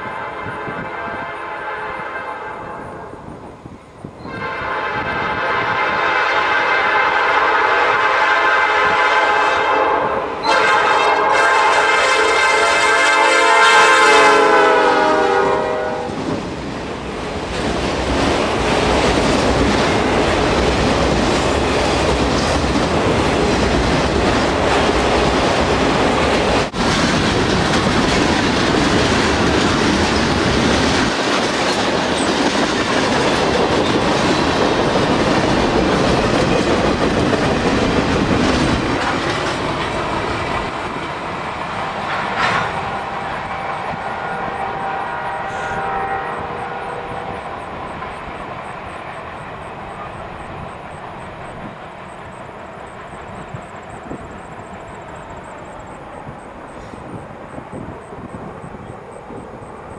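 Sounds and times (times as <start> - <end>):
freight train cars rolling past: 0.0 - 59.9
steel wheels clattering on rails: 17.2 - 43.8.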